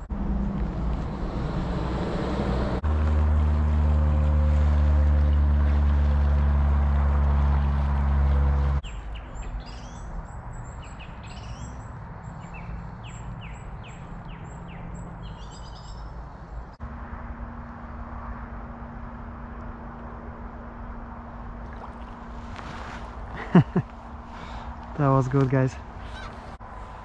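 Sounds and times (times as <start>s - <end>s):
songbird singing: 8.6s - 16.8s
steady outdoor hiss: 20.6s - 27.0s.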